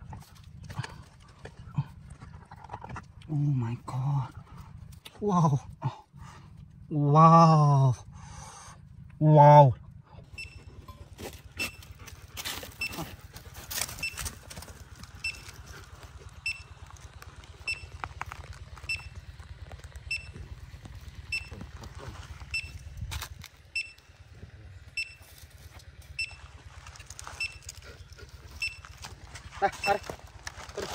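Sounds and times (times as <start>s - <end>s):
low hum: 0.0s - 30.9s
high electronic beep: 10.3s - 11.8s, 20.1s - 20.4s, 21.3s - 21.6s, 23.8s - 24.0s, 25.0s - 25.2s, 26.2s - 26.4s.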